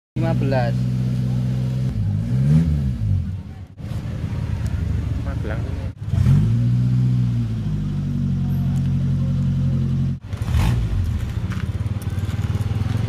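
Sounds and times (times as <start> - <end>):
vehicle engine running: 0.2 - 13.0.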